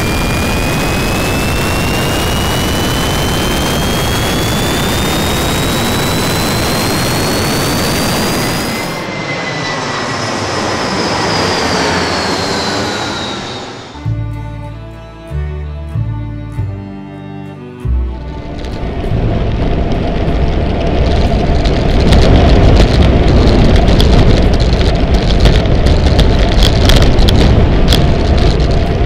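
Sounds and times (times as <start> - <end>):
jet aircraft flying past: 0.0 - 14.2, 18.2 - 29.0
music: 14.0 - 21.8.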